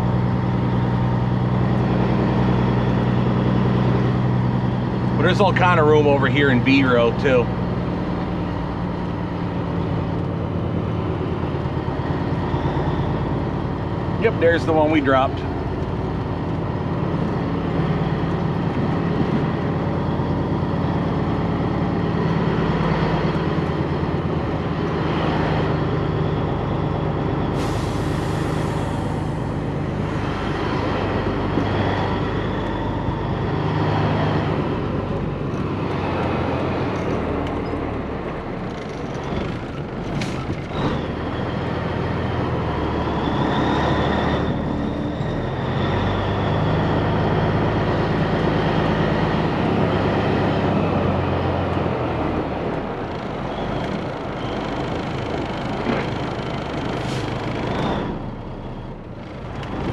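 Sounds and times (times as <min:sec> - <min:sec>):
diesel truck engine running: 0:00.0 - 0:59.9
air brakes hissing: 0:27.5 - 0:30.3, 0:56.8 - 0:57.6.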